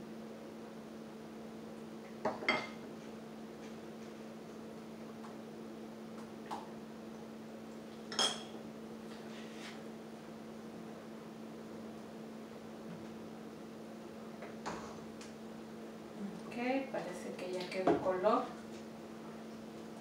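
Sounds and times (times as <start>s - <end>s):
steady hum: 0.0s - 20.0s.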